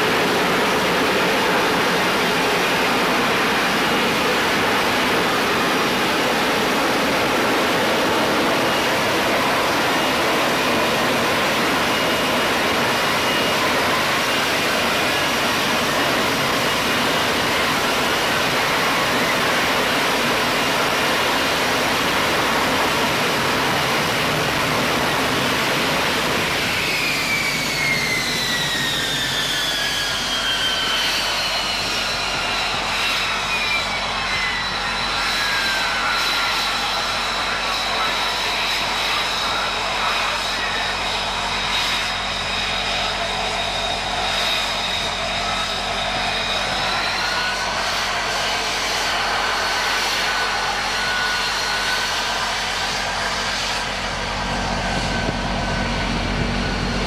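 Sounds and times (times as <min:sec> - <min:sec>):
jet engine running loud: 0:00.0 - 0:57.0
jet engine winding down whine: 0:00.0 - 0:57.0.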